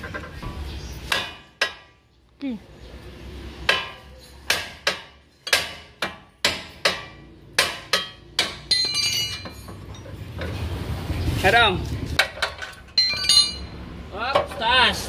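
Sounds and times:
hammer striking metal: 1.1s - 2.0s, 3.6s - 9.8s
metallic clatter: 3.7s - 11.4s, 12.0s - 14.8s.

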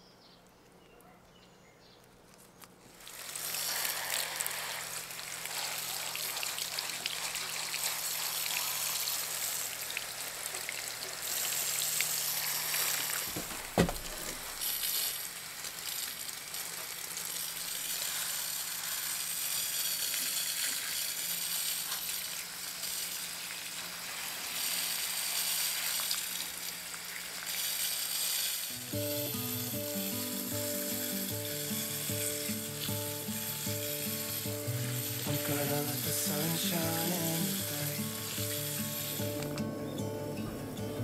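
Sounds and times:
water hissing from spray head: 2.9s - 40.9s
soft background music: 28.8s - 41.0s.

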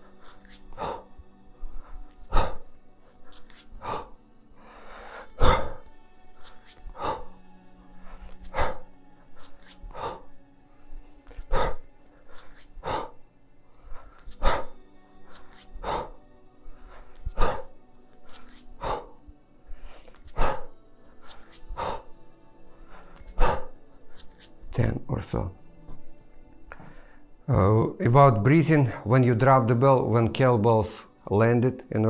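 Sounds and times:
sharp exhalations: 0.0s - 24.5s.

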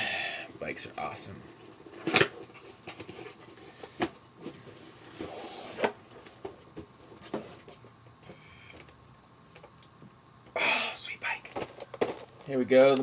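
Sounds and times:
packaging rustling: 11.6s - 13.0s.

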